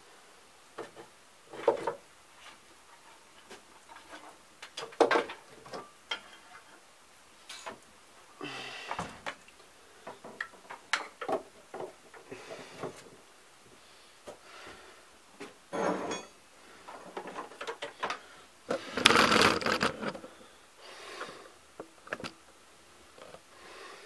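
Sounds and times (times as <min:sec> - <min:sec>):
tools clattering on workbench: 0:15.7 - 0:18.2.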